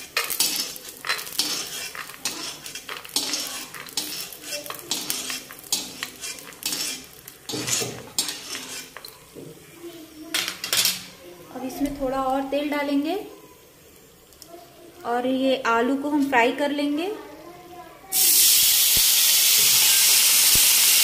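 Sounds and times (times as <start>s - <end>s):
metal ladle scraping a pan: 0.0s - 9.2s
oil sizzling: 0.0s - 16.6s, 18.1s - 21.0s.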